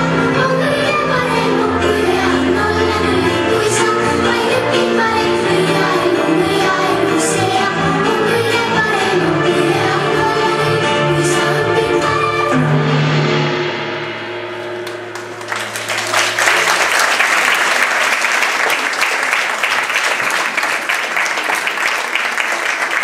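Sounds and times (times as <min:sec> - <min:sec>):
audience applause: 0:14.8 - 0:23.0.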